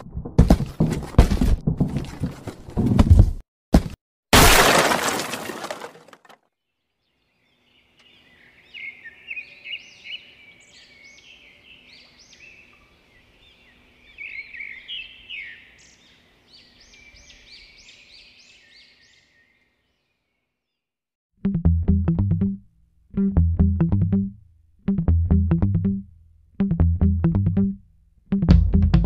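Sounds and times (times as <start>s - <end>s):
small birds chirping: 6.7s - 20.8s.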